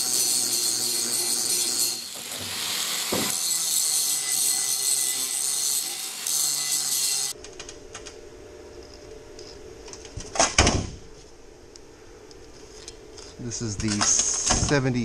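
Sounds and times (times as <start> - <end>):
angle grinder grinding steel: 0.0 - 7.4.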